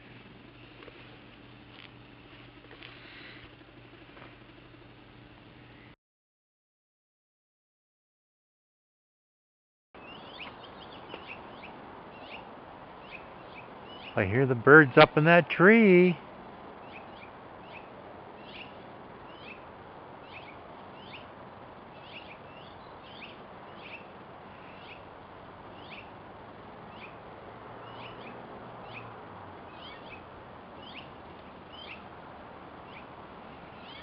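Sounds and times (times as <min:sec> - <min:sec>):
small birds chirping: 0:10.0 - 0:15.4, 0:16.6 - 0:34.0
steady background hiss: 0:10.0 - 0:34.0.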